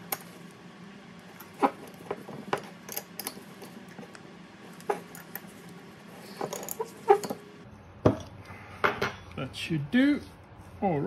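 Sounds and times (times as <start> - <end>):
metal parts clicking and clinking: 1.4 - 3.8, 6.3 - 7.4.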